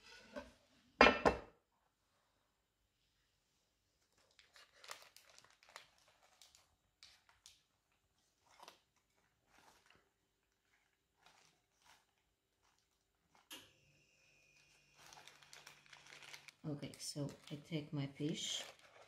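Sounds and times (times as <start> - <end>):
parchment paper crinkling and tearing: 4.0 - 13.5, 14.5 - 19.0.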